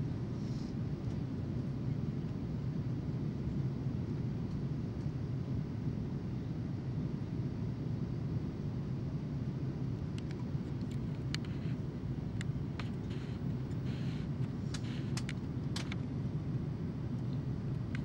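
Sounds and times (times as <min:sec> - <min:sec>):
airliner engine and airflow rumble: 0:00.0 - 0:18.0
light clicks and ticks: 0:10.2 - 0:11.8.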